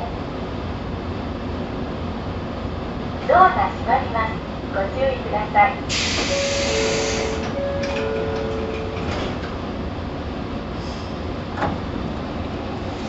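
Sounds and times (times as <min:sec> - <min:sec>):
train idling hum: 0:00.0 - 0:13.0
pneumatic door air hiss: 0:05.9 - 0:07.6.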